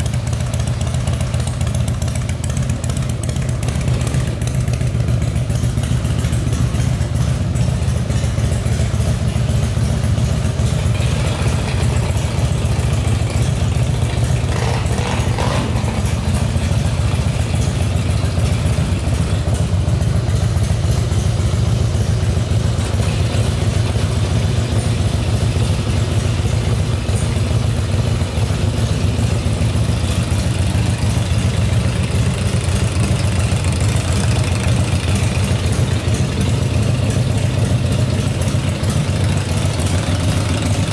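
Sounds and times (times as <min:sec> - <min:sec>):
motorcycle engine idling: 0:00.0 - 0:40.9.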